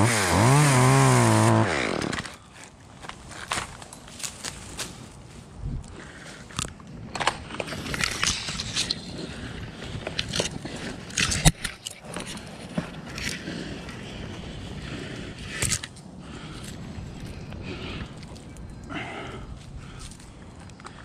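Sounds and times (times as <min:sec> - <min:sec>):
tree branches rustling: 0:01.7 - 0:06.6.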